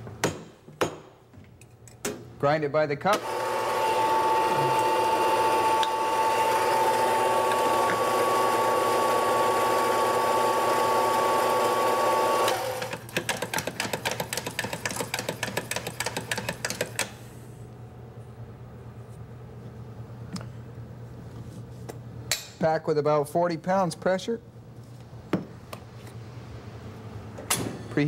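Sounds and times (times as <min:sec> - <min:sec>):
coffee grinder motor humming: 0:03.2 - 0:13.0.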